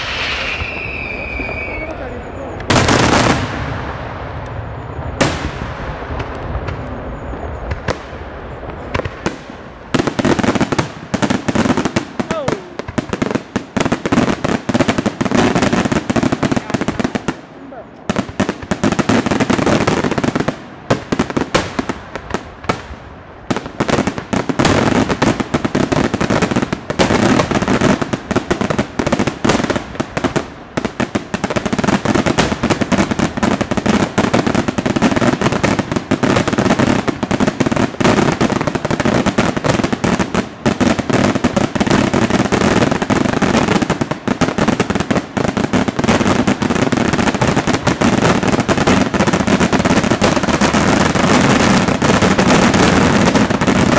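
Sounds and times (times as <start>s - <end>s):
firecracker bangs: 0.0s - 2.0s, 2.6s - 17.3s.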